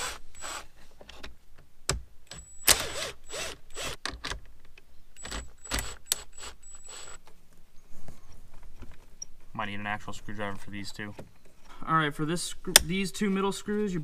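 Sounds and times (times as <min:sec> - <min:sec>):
drill-driver motor whirring: 0:00.0 - 0:00.6, 0:02.4 - 0:04.0, 0:05.2 - 0:07.2.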